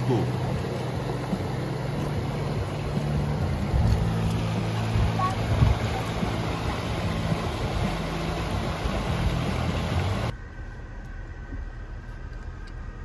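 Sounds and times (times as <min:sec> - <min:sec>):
mountain stream rushing: 0:00.0 - 0:10.3
car interior rumble: 0:00.0 - 0:13.0.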